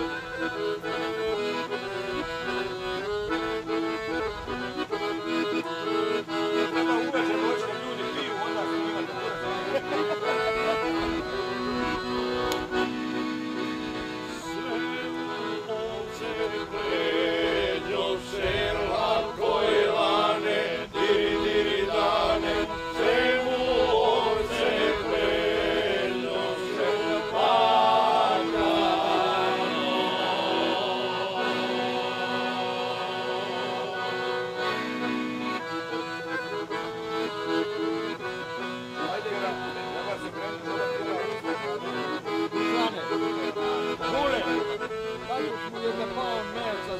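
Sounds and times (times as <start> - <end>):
accordion playing folk tune: 0.0 - 46.9
men singing: 14.3 - 34.6.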